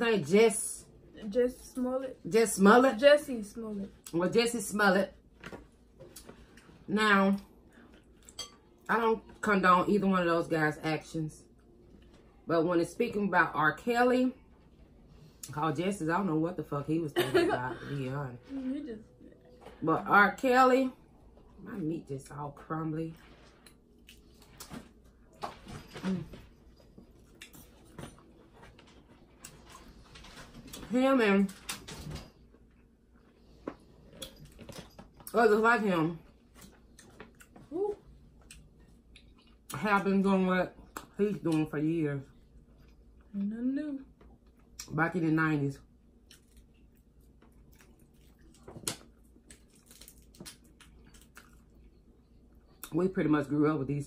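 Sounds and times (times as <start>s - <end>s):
chewing: 46.2s - 52.9s.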